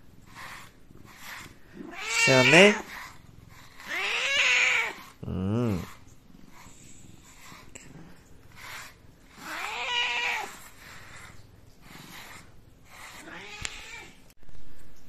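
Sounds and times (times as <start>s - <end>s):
brush rasping through fur: 0.0s - 14.0s
cat meowing: 1.8s - 3.1s, 3.8s - 5.9s, 9.4s - 10.6s, 13.1s - 14.2s.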